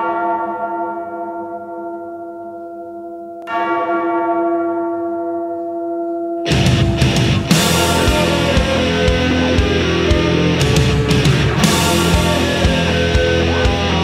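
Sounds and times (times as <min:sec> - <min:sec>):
large bell tolling: 0:00.0 - 0:14.0
loud rock music: 0:06.5 - 0:14.0.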